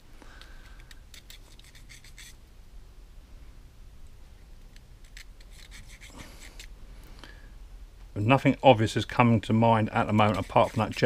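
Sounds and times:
file scratching in brass tube: 1.1s - 2.4s, 5.2s - 6.7s, 10.0s - 11.0s.

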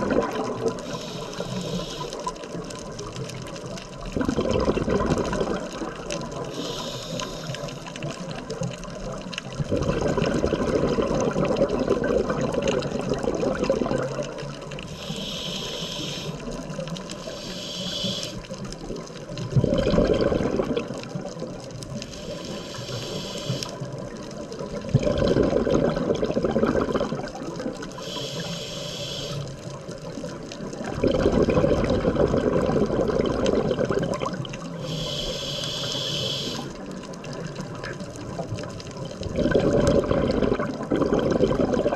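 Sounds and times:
exhaust bubbles gushing: 0.0s - 1.0s, 3.9s - 6.7s, 8.4s - 15.3s, 18.9s - 22.9s, 24.0s - 28.2s, 30.7s - 35.2s, 36.0s - 41.9s
regulator inhale hiss: 0.6s - 2.9s, 6.3s - 8.4s, 14.8s - 18.6s, 22.0s - 23.9s, 27.9s - 29.8s, 34.7s - 36.9s.

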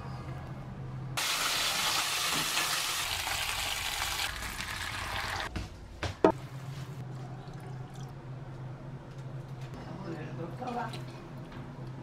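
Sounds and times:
meat sizzling in a pan: 1.2s - 4.3s.

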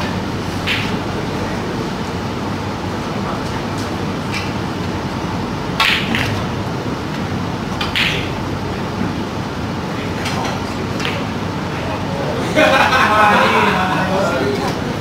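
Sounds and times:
cue tip striking ball: 0.0s - 1.1s, 5.8s - 6.5s, 7.8s - 8.4s
snooker balls clicking: 0.0s - 1.2s, 5.7s - 8.4s, 10.2s - 11.4s
steady room hum: 0.0s - 15.0s.

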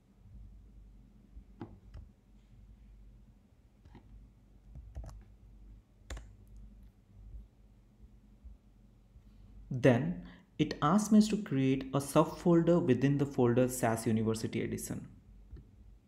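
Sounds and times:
low steady hum: 0.0s - 16.0s
faint mouse and key clicks: 3.8s - 5.3s, 6.1s - 6.7s.

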